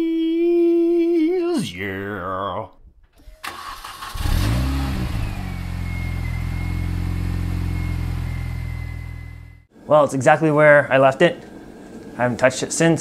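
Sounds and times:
car engine revving: 0:03.5 - 0:09.7.

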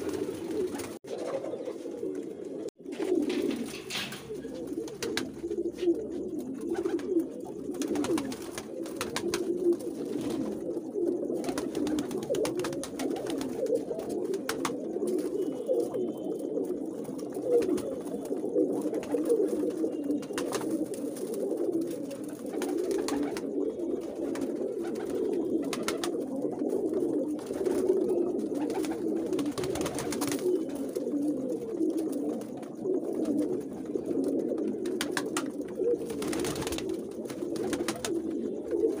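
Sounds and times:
pigeons cooing: 0:00.0 - 0:39.0.

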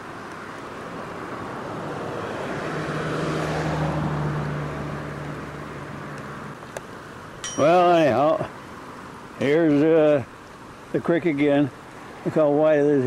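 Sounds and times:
vehicle passing by: 0:00.8 - 0:06.6.

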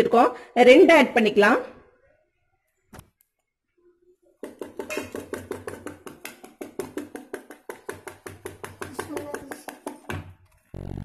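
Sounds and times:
whisk beating batter in bowl: 0:04.4 - 0:10.3.

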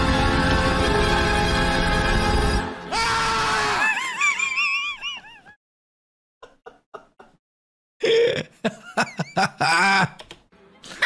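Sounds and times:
man laughing: 0:03.7 - 0:05.6, 0:08.0 - 0:10.2.

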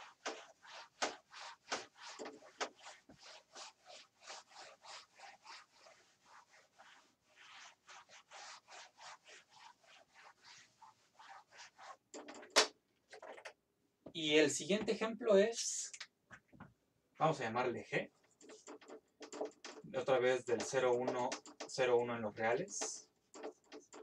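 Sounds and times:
eraser rubbing whiteboard: 0:00.0 - 0:13.4, 0:18.4 - 0:21.8, 0:22.5 - 0:24.0.

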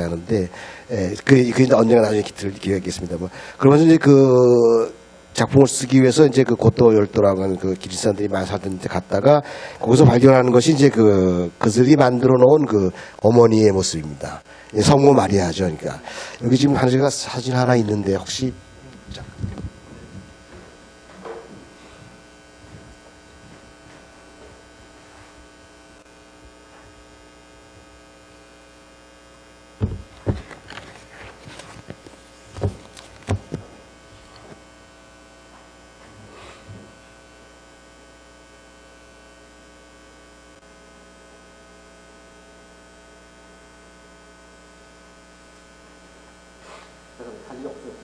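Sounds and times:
electrical mains hum: 0:00.0 - 0:48.0
loud thumps and knocks: 0:29.8 - 0:30.5.

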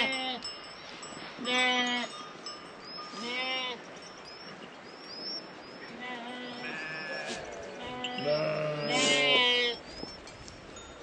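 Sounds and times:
sheep and goats bleating: 0:00.0 - 0:00.5, 0:01.4 - 0:02.2, 0:03.1 - 0:03.9, 0:05.9 - 0:09.8.

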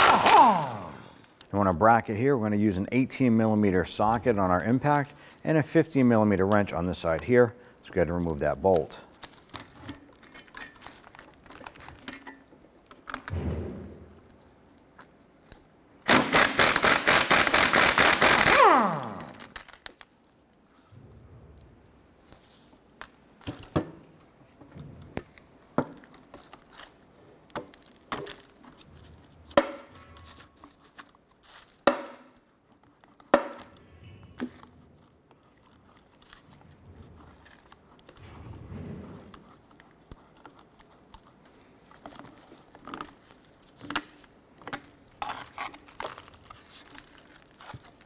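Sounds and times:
metal clinks and knocks: 0:23.4 - 0:25.0.

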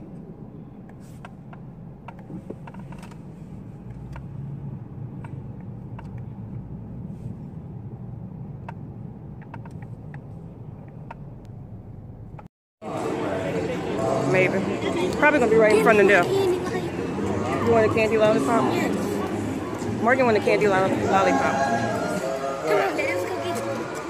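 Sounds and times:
car engine low rumble from inside: 0:00.0 - 0:12.5
faint irregular clicks: 0:09.4 - 0:11.2.

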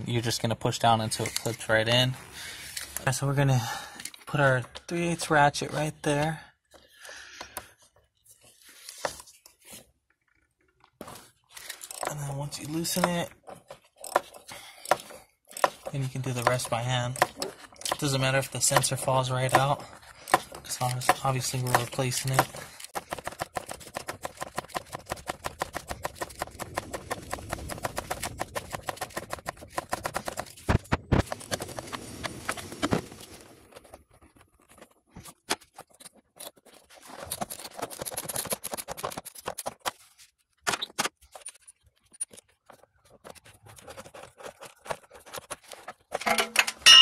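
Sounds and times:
faint clicks and scrapes: 0:01.0 - 0:03.2, 0:04.0 - 0:18.4, 0:19.5 - 0:46.8.

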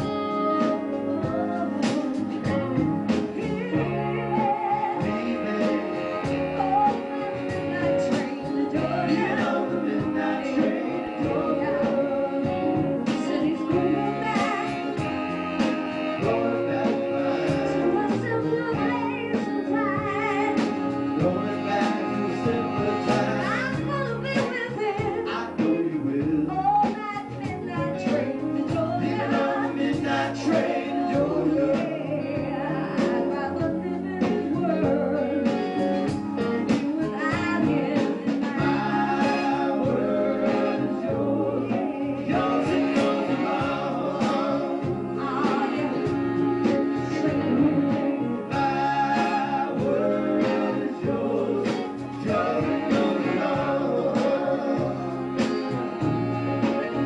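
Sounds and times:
live soul band playing: 0:00.0 - 0:57.0
person singing: 0:00.0 - 0:57.0.

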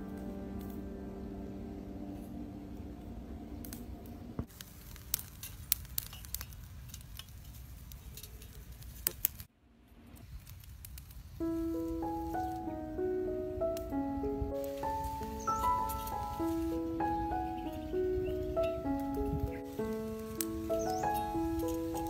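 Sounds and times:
background music: 0:00.0 - 0:04.5, 0:11.4 - 0:22.0.

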